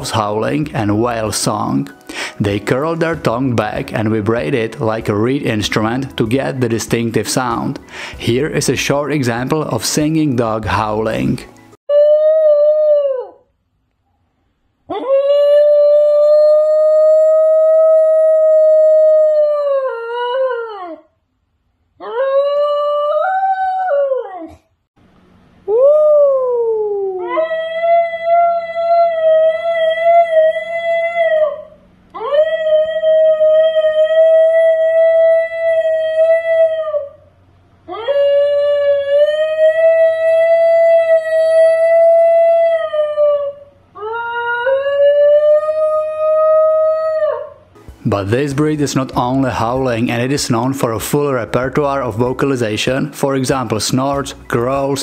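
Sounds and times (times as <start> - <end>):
dog howling: 11.9 - 13.5, 14.9 - 21.1, 22.0 - 24.6, 25.7 - 37.3, 37.9 - 47.8.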